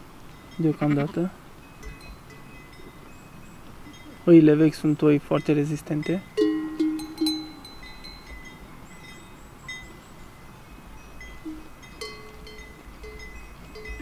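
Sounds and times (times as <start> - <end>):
sheep bells clinking: 0.0 - 14.0.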